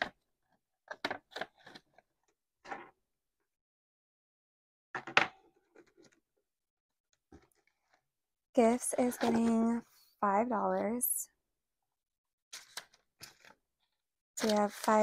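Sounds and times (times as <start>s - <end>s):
banknotes rustling: 14.4s - 15.0s.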